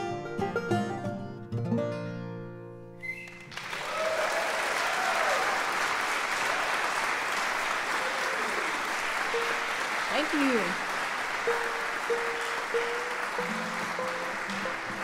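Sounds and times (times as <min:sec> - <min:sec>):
acoustic guitar and banjo chord: 0:00.0 - 0:03.0, 0:09.3 - 0:10.3, 0:11.4 - 0:15.0
audience applauding: 0:03.0 - 0:15.0
audience whooping: 0:03.0 - 0:15.0.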